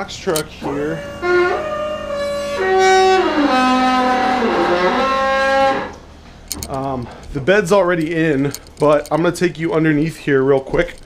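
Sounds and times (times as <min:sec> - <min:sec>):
melody of long held notes: 0:00.6 - 0:06.1.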